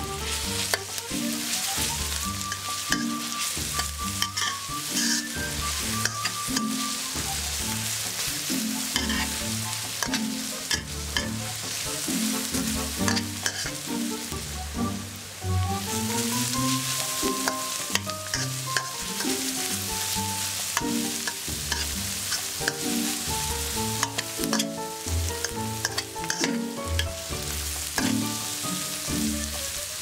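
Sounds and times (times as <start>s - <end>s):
background music: 0.0s - 30.0s
food sizzling in hot oil: 0.0s - 30.0s
spatula scraping metal pan: 0.3s - 7.2s, 8.2s - 13.8s, 16.2s - 27.2s.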